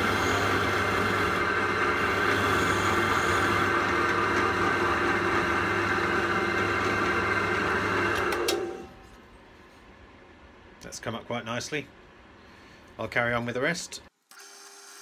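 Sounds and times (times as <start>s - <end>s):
drill motor hum: 0.0s - 8.8s
wire brush whirring on metal: 0.0s - 8.8s.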